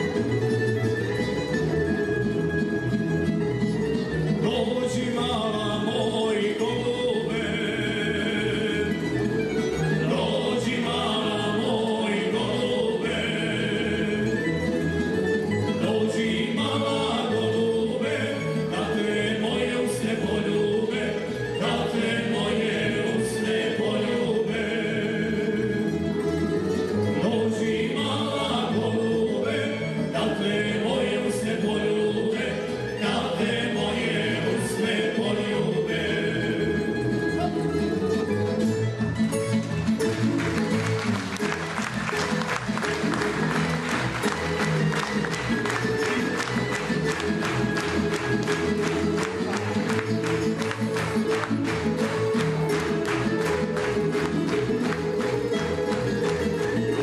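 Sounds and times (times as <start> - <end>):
string band playing folk song: 0.0 - 57.0
men singing together: 4.4 - 14.6, 15.8 - 26.0, 27.1 - 37.1, 45.1 - 52.2.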